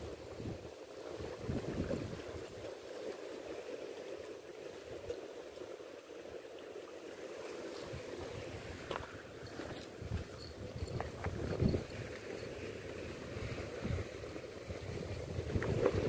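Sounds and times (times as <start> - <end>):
wind buffeting microphone: 0.0 - 2.7, 7.8 - 12.5, 13.3 - 16.0
waves washing against rocks: 0.0 - 16.0.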